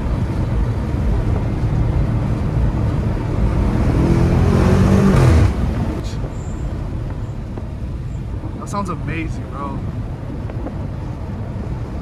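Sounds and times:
car engine accelerating from inside: 0.0 - 6.2.

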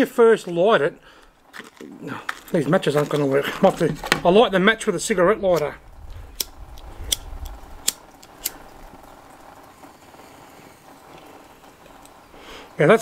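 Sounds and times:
lighter clicks: 6.3 - 8.7.

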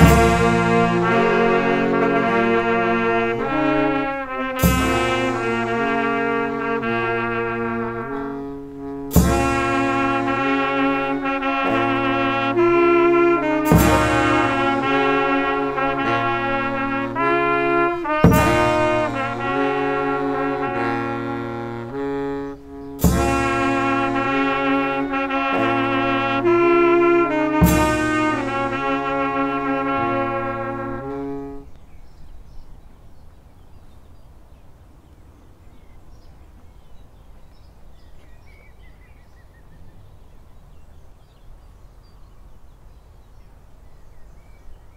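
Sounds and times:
bass drum and cymbal crash: 0.0 - 1.8, 4.6 - 6.2, 9.1 - 10.7, 13.6 - 15.1, 18.2 - 19.7, 23.0 - 24.7, 27.5 - 29.4
brass band playing slow tune: 0.0 - 31.8
faint background noise: 0.0 - 44.9.

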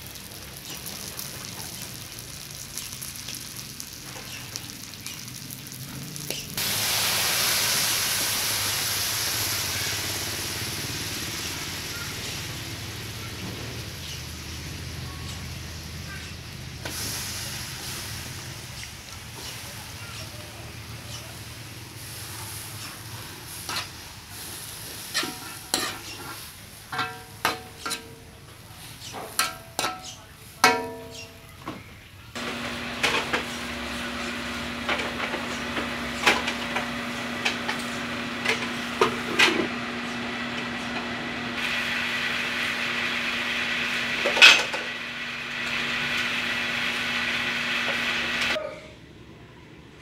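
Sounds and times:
food sizzling: 0.0 - 31.2, 32.4 - 48.6
metal spatula scraping a wok: 22.0 - 28.1.

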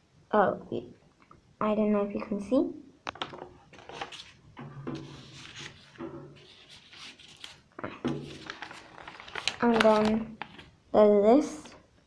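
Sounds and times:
paper rustling: 3.7 - 10.8.

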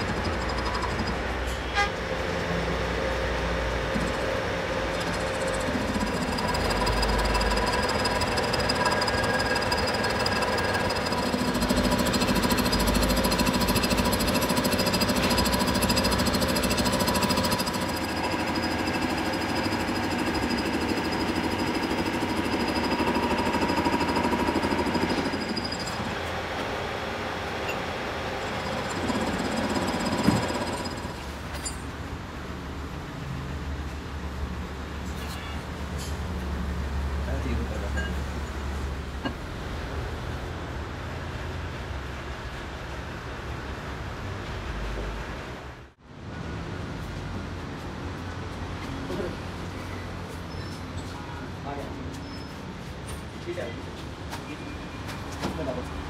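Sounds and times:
lathe cutting steel: 4.0 - 26.3.

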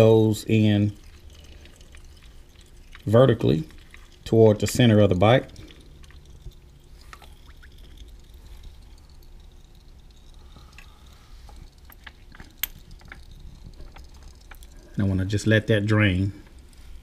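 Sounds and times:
oil trickling into drain pan: 0.0 - 17.0
light clicks and taps: 9.2 - 14.8.

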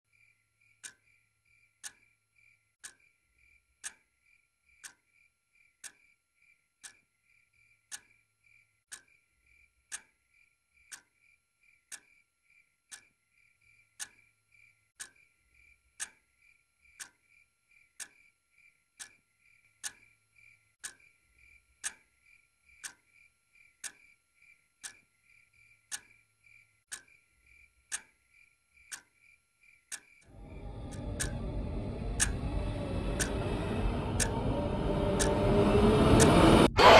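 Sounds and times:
clock ticking: 0.1 - 36.9
faint steady hum: 9.5 - 36.8.

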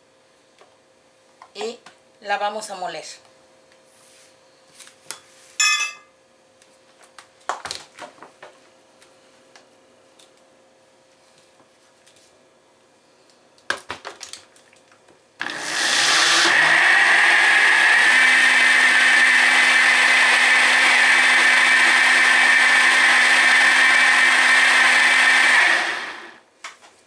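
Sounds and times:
blender motor running: 15.4 - 26.4.

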